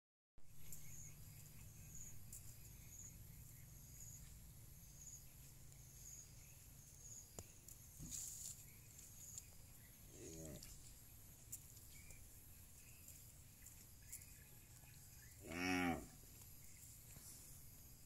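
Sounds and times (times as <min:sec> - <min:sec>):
insect chirping: 0:00.5 - 0:18.0
high insect drone: 0:12.8 - 0:18.0.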